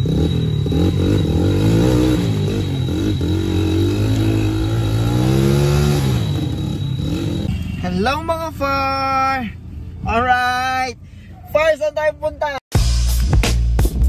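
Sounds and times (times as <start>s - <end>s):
dirt bike engine revving: 0.0s - 7.5s.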